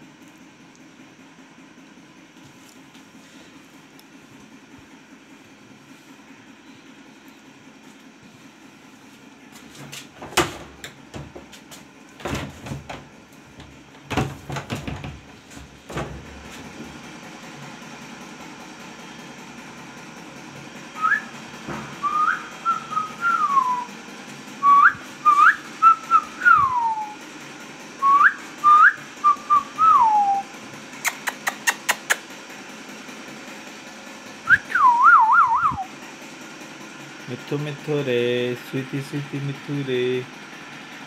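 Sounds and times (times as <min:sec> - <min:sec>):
knocks and bumps: 0:09.6 - 0:17.0, 0:21.6 - 0:22.3
parakeet whistling: 0:22.0 - 0:23.9.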